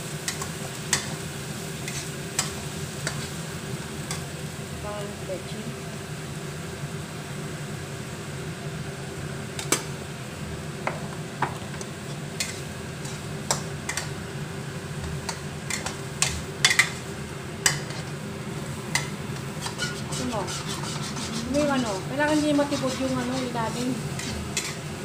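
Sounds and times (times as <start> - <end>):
metal spoon clinking and scraping wok: 15.2 - 17.0, 18.9 - 24.8.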